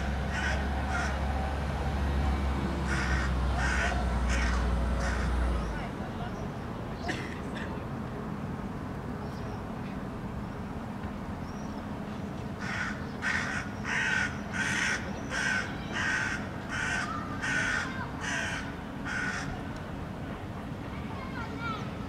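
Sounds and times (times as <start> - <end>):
crow cawing harshly: 0.3 - 1.2, 2.9 - 5.4, 12.6 - 19.6.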